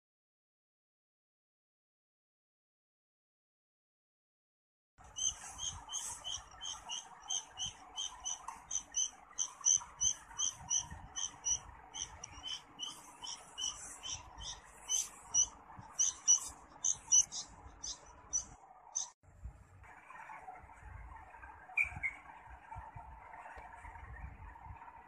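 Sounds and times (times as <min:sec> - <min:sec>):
nestling begging chirps: 0:05.1 - 0:19.2.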